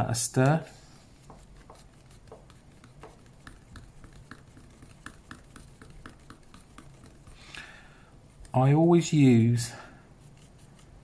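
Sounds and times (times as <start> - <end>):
stirrer scraping plastic pot: 1.2 - 7.4.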